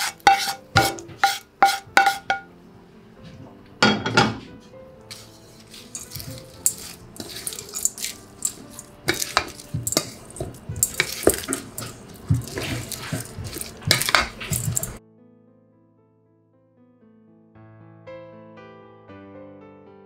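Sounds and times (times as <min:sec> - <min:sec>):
spatula scraping metal bowl: 0:00.0 - 0:02.4, 0:05.1 - 0:15.0.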